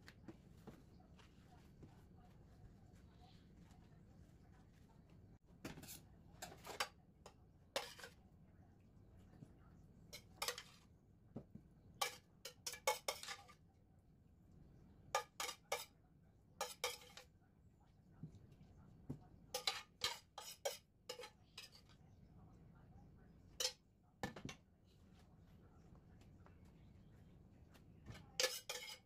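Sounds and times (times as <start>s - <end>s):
cutlery and dishes clinking: 5.6s - 8.2s, 10.1s - 10.9s, 12.0s - 13.6s, 15.1s - 16.0s, 16.6s - 17.3s, 19.5s - 22.0s, 23.5s - 24.6s, 28.0s - 29.0s.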